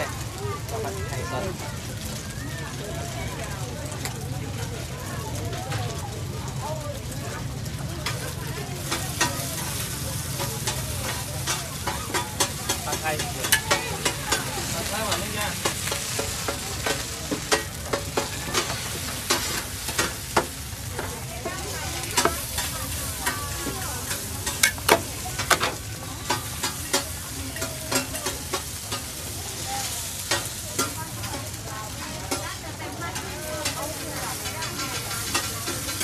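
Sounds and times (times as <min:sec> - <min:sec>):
food sizzling in oil: 0:00.0 - 0:36.0.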